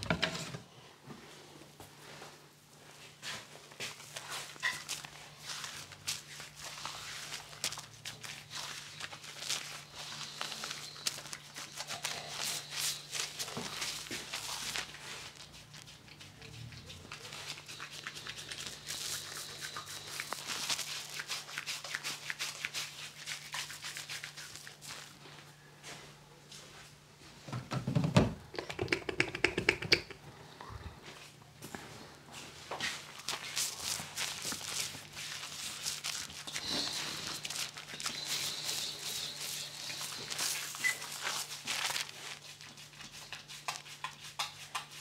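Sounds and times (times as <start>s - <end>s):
hands rubbing soap lather: 3.4s - 25.2s, 28.5s - 30.2s, 32.8s - 45.0s
knocks and rustling: 27.4s - 30.2s.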